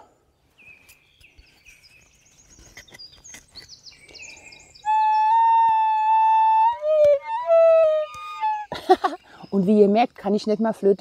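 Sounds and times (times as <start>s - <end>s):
small birds chirping: 0.0s - 11.0s
flute long high note: 4.8s - 8.7s.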